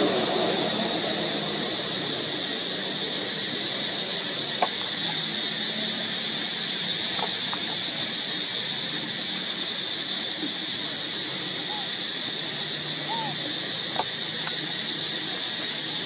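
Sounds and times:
high-pitched insect drone: 0.0s - 16.0s.

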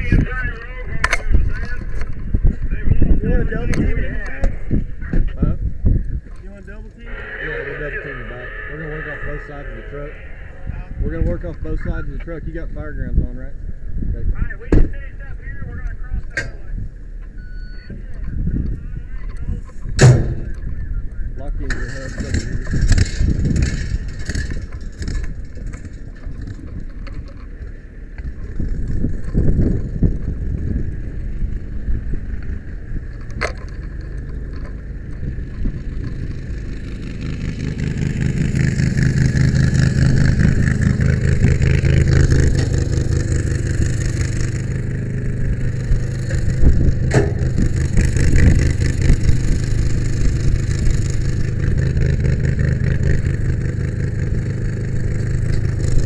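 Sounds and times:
truck engine and road noise: 0.0s - 56.0s
sharp click or rattle: 47.1s - 47.7s.

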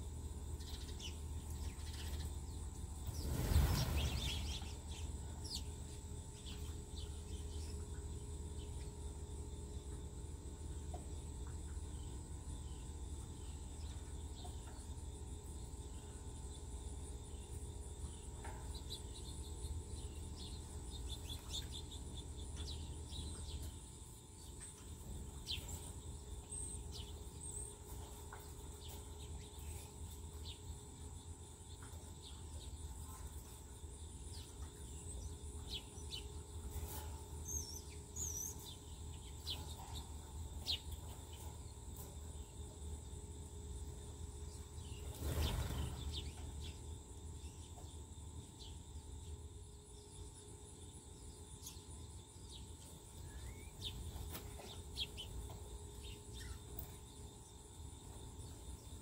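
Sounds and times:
insect drone: 0.0s - 59.0s.

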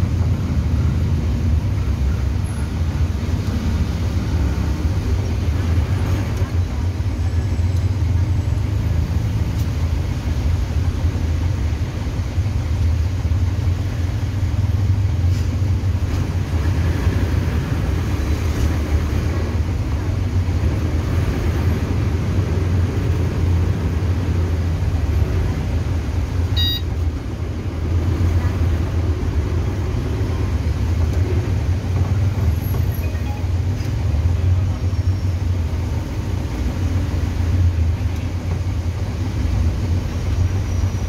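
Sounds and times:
bus engine low hum: 0.0s - 41.0s.

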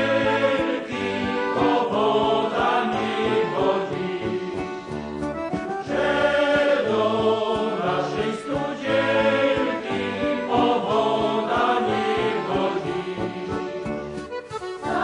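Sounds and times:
group of voices singing: 0.0s - 5.0s, 5.8s - 14.0s, 14.8s - 15.0s.

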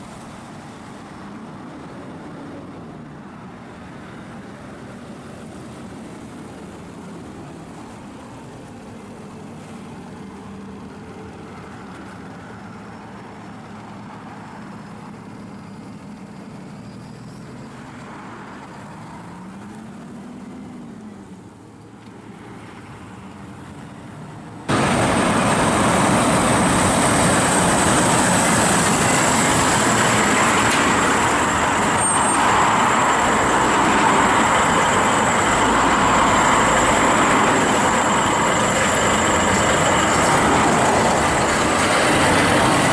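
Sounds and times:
lorry diesel engine driving past: 22.8s - 42.9s
close truck engine running: 23.0s - 42.9s
high-pitched whistle: 28.4s - 41.2s.

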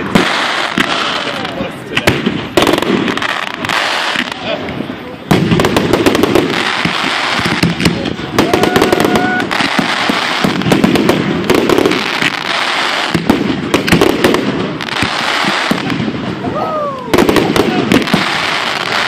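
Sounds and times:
fireworks crackling: 0.0s - 19.0s
firework shells banging: 2.0s - 16.4s.

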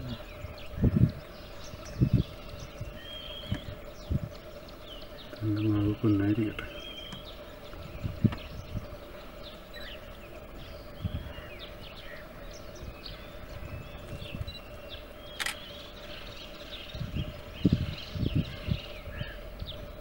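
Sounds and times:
dull low thumps: 0.0s - 4.9s, 6.6s - 9.5s
small birds chirping: 0.0s - 20.0s
steady low hum: 0.0s - 20.0s
sharp click: 15.4s - 15.7s.

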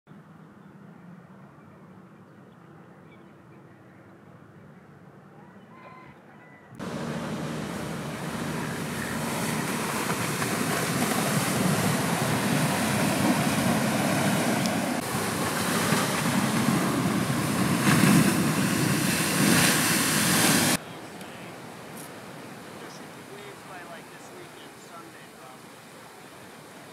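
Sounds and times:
wind noise on microphone: 6.8s - 20.8s
waves breaking against rocks: 6.8s - 26.9s.

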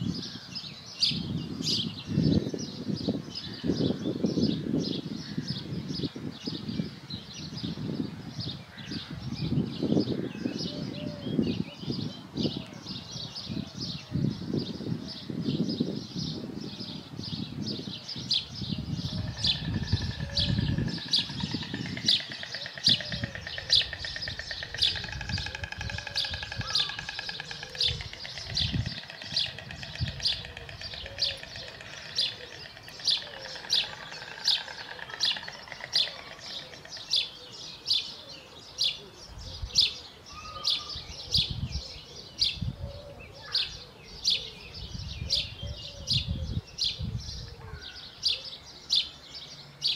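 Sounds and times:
small bird calling: 18.8s - 49.2s.

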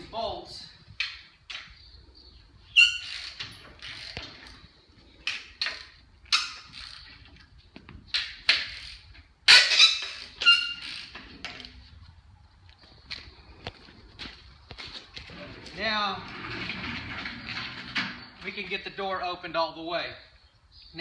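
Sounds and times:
metal bolts squeaking: 2.6s - 7.3s, 8.1s - 11.8s, 15.8s - 19.0s.

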